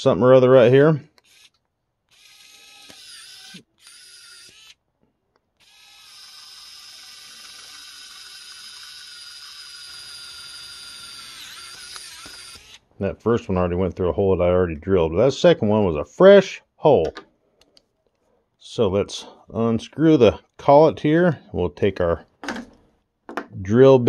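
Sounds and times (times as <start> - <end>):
mini drill motor whine: 1.2 - 4.8, 5.6 - 12.8.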